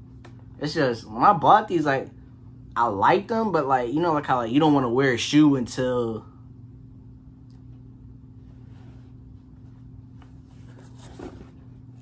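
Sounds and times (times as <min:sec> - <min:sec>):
steady electrical hum: 0:00.0 - 0:12.0
soft handling clicks and rustles: 0:07.4 - 0:12.0.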